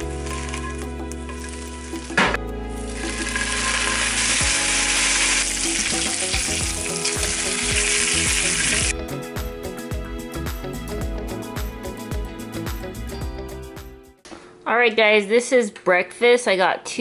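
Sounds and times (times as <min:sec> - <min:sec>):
egg and bacon sizzling in a pan: 0:02.8 - 0:08.9.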